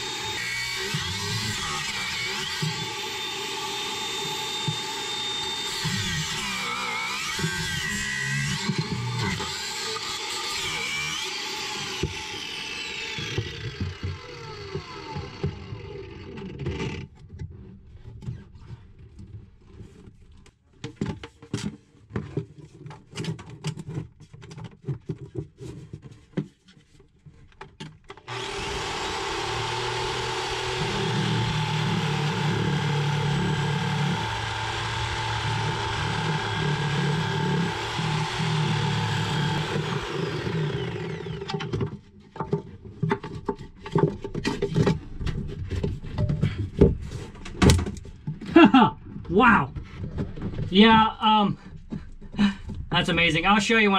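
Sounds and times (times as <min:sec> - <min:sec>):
reciprocating saw cutting: 0:00.0 - 0:16.4, 0:28.3 - 0:41.7
angle grinder whining: 0:00.0 - 0:17.0, 0:28.3 - 0:41.9.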